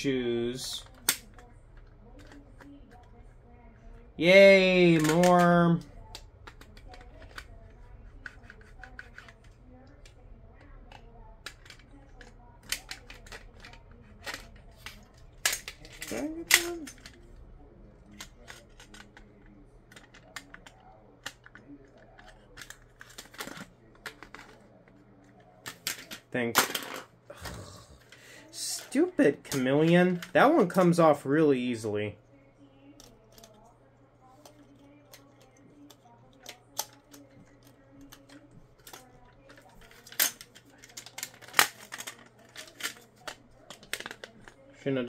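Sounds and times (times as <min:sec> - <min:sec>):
plastic toy parts clicking: 0:00.8 - 0:03.1, 0:04.6 - 0:17.3, 0:18.0 - 0:24.6, 0:25.6 - 0:27.0, 0:29.5 - 0:30.9, 0:33.0 - 0:33.7, 0:34.4 - 0:44.6.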